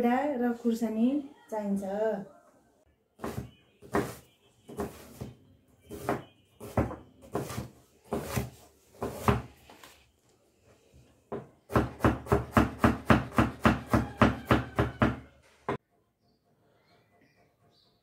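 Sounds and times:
knife chopping on wooden board: 3.2s - 5.3s, 5.9s - 9.6s, 11.3s - 15.2s.

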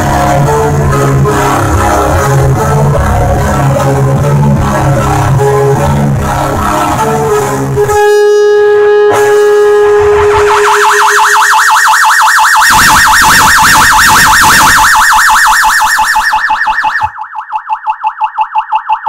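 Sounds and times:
electric guitar feedback tone: 0.0s - 11.4s
warbling siren-like guitar effect: 0.0s - 19.0s.

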